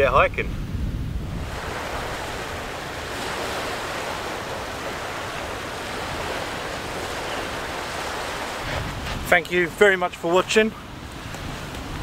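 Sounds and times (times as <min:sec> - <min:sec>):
waves washing over rocky shore: 0:01.4 - 0:10.0.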